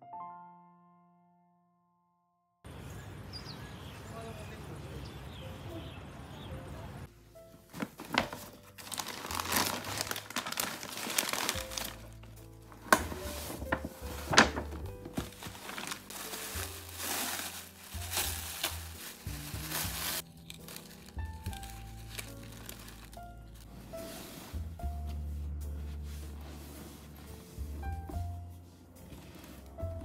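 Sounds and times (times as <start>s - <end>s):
packaging crinkling and rustling: 7.5s - 23.7s
background music with bass: 16.6s - 30.0s.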